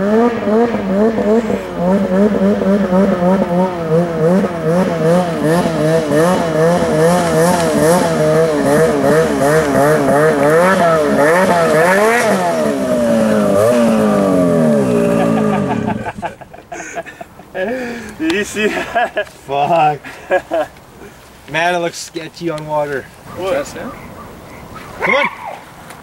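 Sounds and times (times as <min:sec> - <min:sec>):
snowmobile engine revving: 0:00.0 - 0:17.0.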